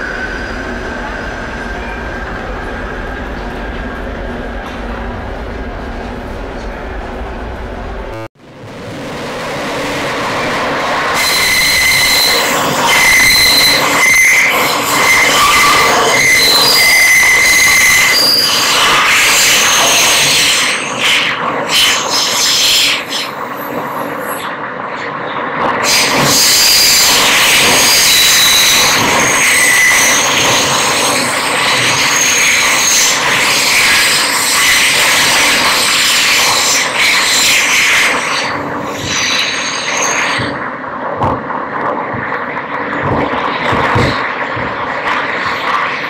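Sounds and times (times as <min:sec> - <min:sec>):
subway car wheels rumbling on rails: 0:00.0 - 0:46.0
high wheel squealing: 0:11.0 - 0:21.0, 0:25.9 - 0:40.6.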